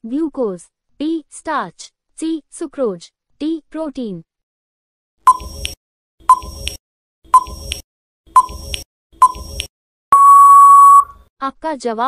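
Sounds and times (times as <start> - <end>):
short electronic blips: 8.4 - 11.1
long steady beep: 10.1 - 11.2.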